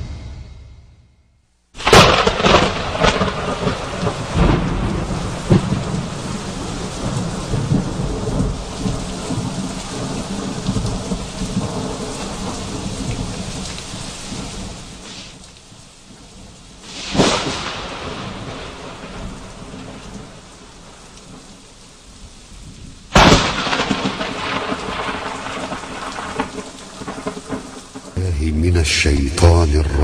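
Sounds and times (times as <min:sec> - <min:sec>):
rolling thunder: 0:00.0 - 0:01.2, 0:01.8 - 0:09.6, 0:23.2 - 0:27.2
thunderclap: 0:00.0 - 0:06.2
steady rain: 0:01.8 - 0:30.0.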